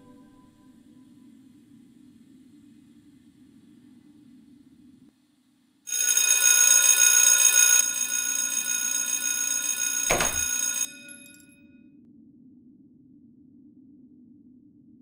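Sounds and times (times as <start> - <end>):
electric bell ringing: 5.9 - 11.5
gunshot: 10.1 - 10.5.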